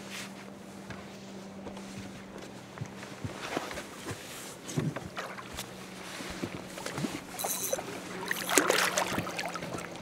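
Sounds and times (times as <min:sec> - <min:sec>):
steady low hum: 0:00.0 - 0:10.0
water lapping at hull: 0:02.0 - 0:10.0
fish splashing at surface: 0:06.8 - 0:10.0.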